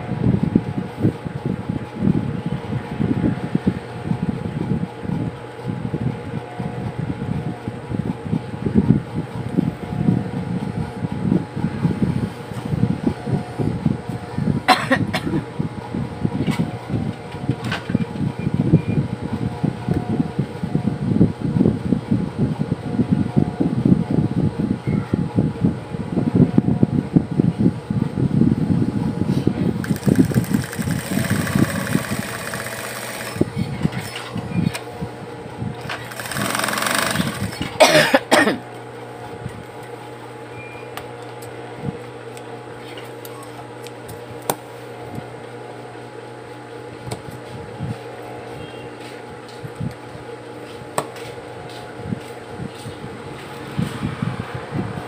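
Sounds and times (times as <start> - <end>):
sewing machine motor humming: 29.8 - 34.1, 35.8 - 37.8
sewing machine stitching: 29.8 - 34.1, 35.9 - 37.7.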